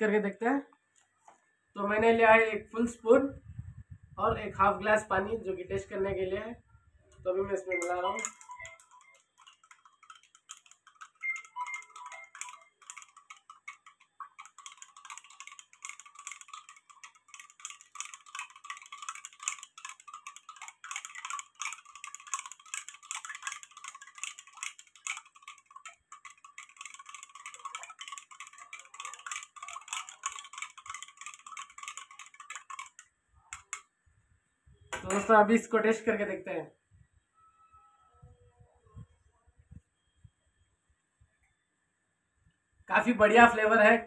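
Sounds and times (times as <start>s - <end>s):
spoon clinking in glass: 7.8s - 24.9s, 35.0s - 35.3s.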